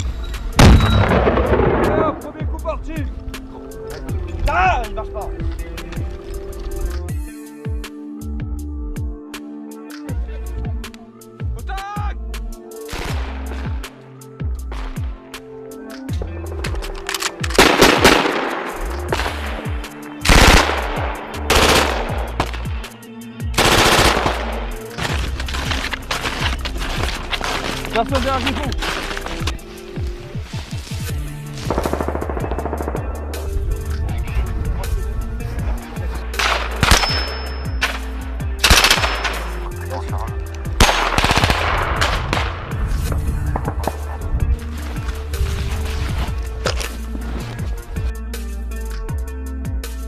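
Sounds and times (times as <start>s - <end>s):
heavy bass music: 0.0s - 3.4s, 16.2s - 50.0s
rifle shots echoing: 0.6s - 2.2s, 17.6s - 22.6s, 31.7s - 33.2s, 38.6s - 39.6s, 40.8s - 42.7s.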